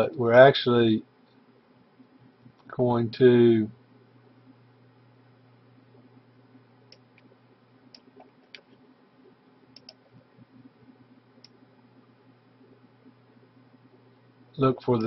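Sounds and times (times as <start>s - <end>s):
faint low hum: 0.0s - 15.0s
computer mouse clicking: 6.9s - 7.3s, 7.9s - 8.8s, 9.7s - 10.2s.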